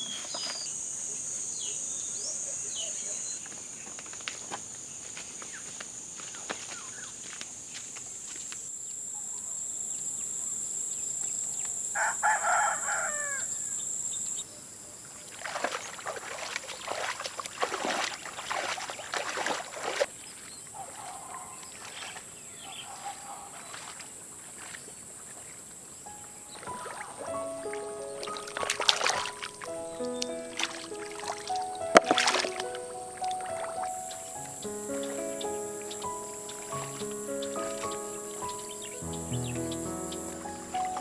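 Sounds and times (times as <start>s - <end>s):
insect drone: 0.0s - 20.6s, 23.8s - 41.0s
rooster crowing: 12.0s - 13.6s
water splashing from wading: 15.3s - 20.1s, 21.7s - 22.3s, 23.0s - 25.6s, 26.5s - 38.6s.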